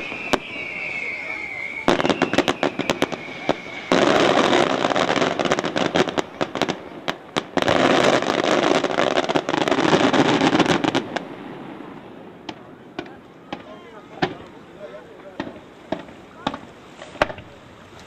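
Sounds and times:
firework whistle gliding down: 0:00.0 - 0:07.1
firework bangs: 0:00.0 - 0:17.6
firework crackling: 0:00.0 - 0:18.0.

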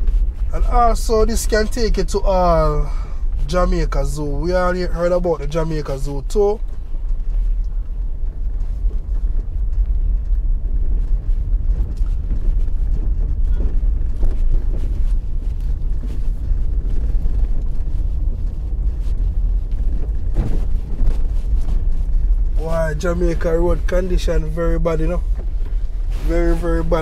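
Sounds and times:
vehicle engine and tyres rumbling: 0:00.0 - 0:27.0
knocks from uneven road: 0:19.7 - 0:22.0.

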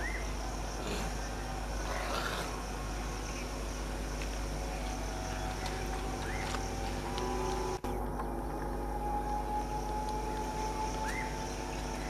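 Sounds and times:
high insect drone: 0:00.0 - 0:12.0.

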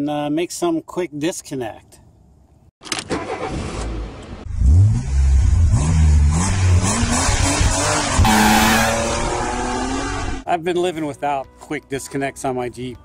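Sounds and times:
car engine revving: 0:03.8 - 0:10.4.

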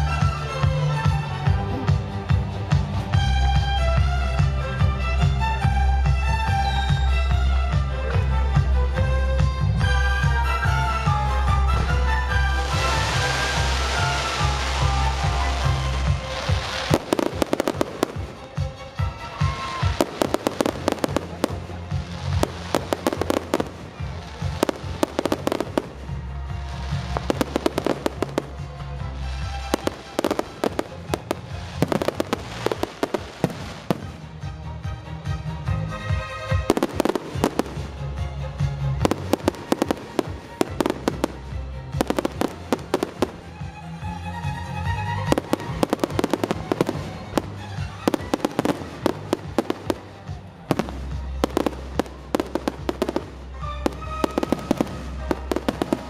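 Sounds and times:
music with steady bass: 0:00.0 - 0:56.0
fireworks bursting and crackling: 0:09.9 - 0:34.5, 0:36.5 - 0:56.0.

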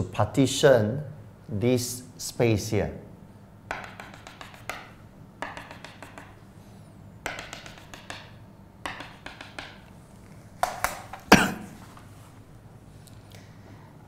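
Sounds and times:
chalk tapping on chalkboard: 0:03.7 - 0:06.4, 0:07.2 - 0:09.9.

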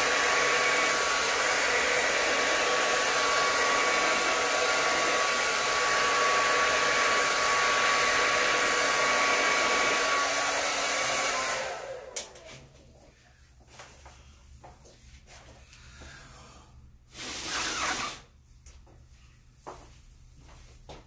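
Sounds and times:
hair dryer running: 0:00.0 - 0:13.1, 0:17.1 - 0:18.3.

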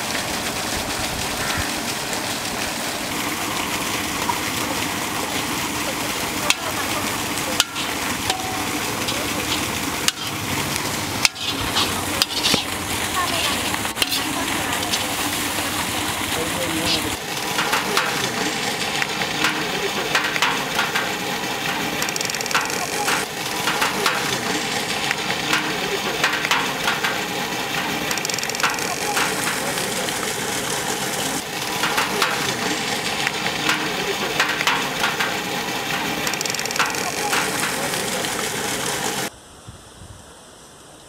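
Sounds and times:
chicken sizzling: 0:00.0 - 0:39.3
metal ladle scraping pan: 0:06.5 - 0:29.9, 0:31.6 - 0:38.0.

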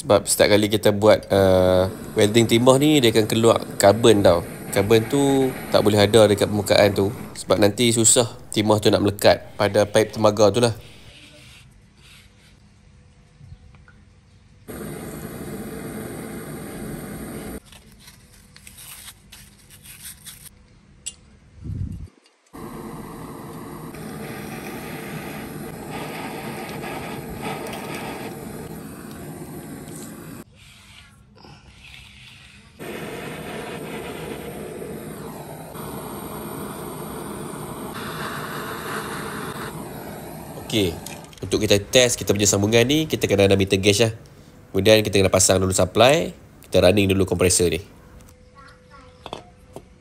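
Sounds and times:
gas torch hissing: 0:00.0 - 0:11.3, 0:14.7 - 0:17.6, 0:22.6 - 0:30.9, 0:32.4 - 0:44.2
loud rushing noise: 0:01.5 - 0:10.0, 0:32.8 - 0:41.3
sandpaper rubbing on pipe: 0:10.9 - 0:12.6, 0:30.4 - 0:32.8.

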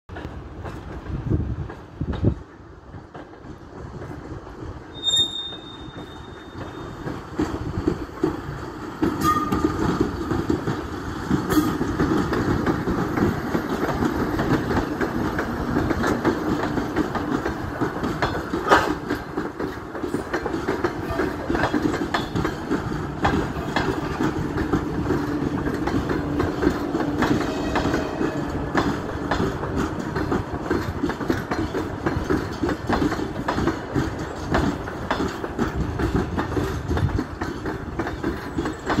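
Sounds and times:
train wheels clattering over rail joints: 0:00.1 - 0:39.0
short high tone: 0:05.0 - 0:06.6.

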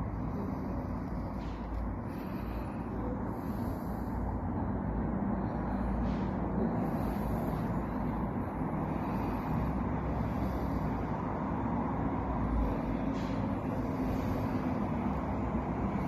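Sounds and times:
street traffic rumble: 0:00.0 - 0:16.0.

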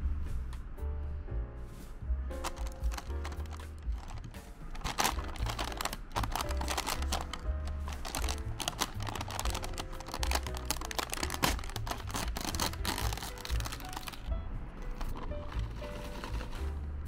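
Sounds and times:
background music with bass line: 0:00.0 - 0:17.0
foil snack pouch tearing: 0:02.4 - 0:14.3.

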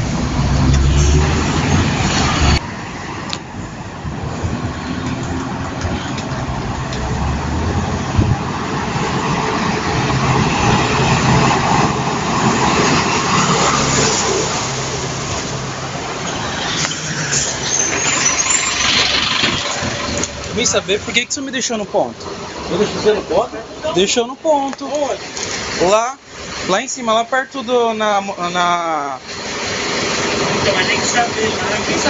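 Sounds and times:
bus engine running: 0:00.0 - 0:26.8, 0:28.6 - 0:32.0
high squeal: 0:10.5 - 0:21.4.

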